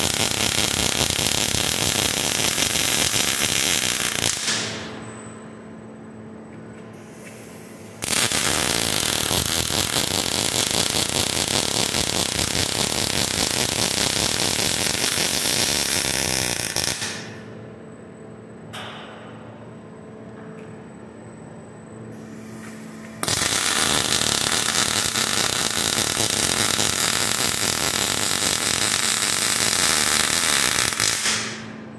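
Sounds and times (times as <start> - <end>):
welding arc crackling: 0.0 - 4.9, 8.0 - 17.5, 23.2 - 31.8
low steady hum: 17.3 - 23.2.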